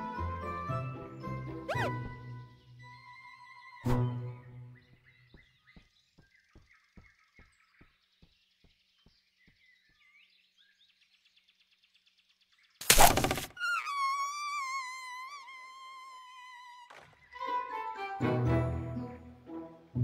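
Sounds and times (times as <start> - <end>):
wavering whistling tone: 1.7 - 2.1
faint bird chirps: 1.7 - 17.5.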